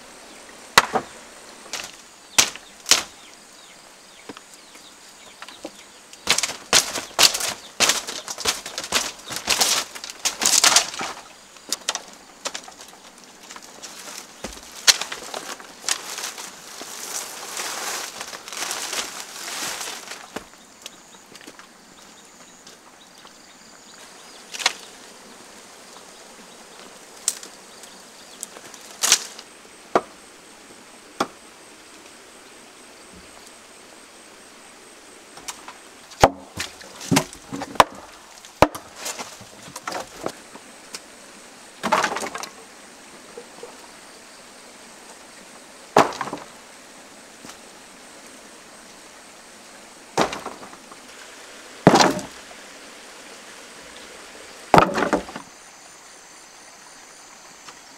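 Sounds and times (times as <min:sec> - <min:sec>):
background hiss: 0:00.0 - 0:57.9
wooden boards and bamboo clattering: 0:00.8 - 0:03.3, 0:05.2 - 0:20.6, 0:24.5 - 0:24.9, 0:28.4 - 0:30.2, 0:35.3 - 0:40.7, 0:41.8 - 0:42.7, 0:45.9 - 0:46.6, 0:50.1 - 0:51.2, 0:51.8 - 0:52.5, 0:54.7 - 0:55.5.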